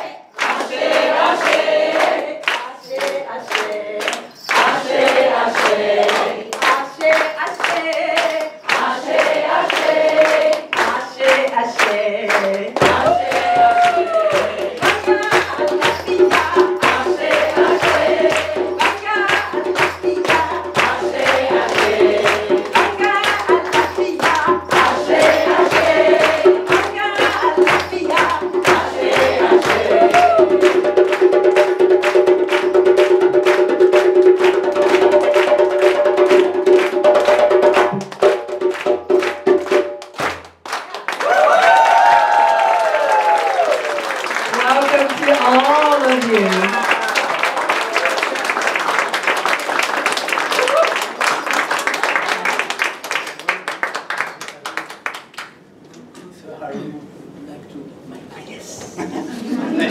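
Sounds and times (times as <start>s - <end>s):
group singing: 0.0s - 31.9s
rhythmic hand clapping: 0.0s - 55.6s.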